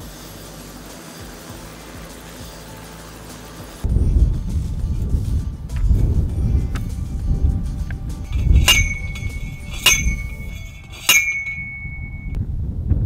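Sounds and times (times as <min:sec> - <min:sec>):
background music: 0:00.0 - 0:11.6
post driver clanging on metal: 0:08.3 - 0:12.4.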